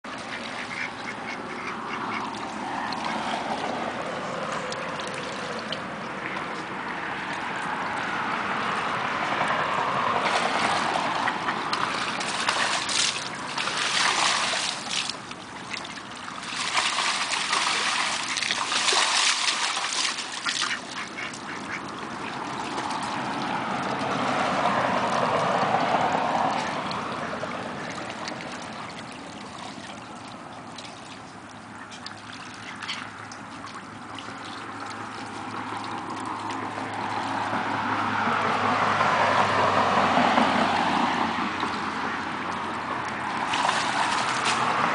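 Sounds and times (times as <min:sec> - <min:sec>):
water splashing and sloshing: 0:00.0 - 0:44.9
ducks quacking: 0:00.2 - 0:02.4, 0:20.4 - 0:22.4.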